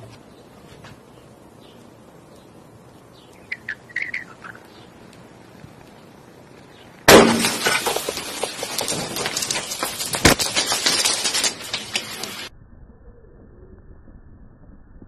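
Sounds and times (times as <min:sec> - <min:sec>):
sharp crack: 0:06.6 - 0:12.5
ice fragments crackling and clattering: 0:07.1 - 0:12.5.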